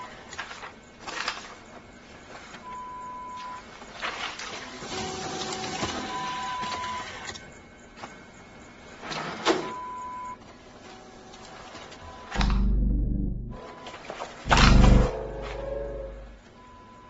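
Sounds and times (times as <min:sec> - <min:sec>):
photocopier whirring and clicking: 0:00.0 - 0:02.7, 0:03.7 - 0:08.3, 0:10.5 - 0:12.4
electronic beep: 0:12.3 - 0:13.6, 0:14.5 - 0:16.4
loud low rumble: 0:12.3 - 0:13.6, 0:14.5 - 0:16.5.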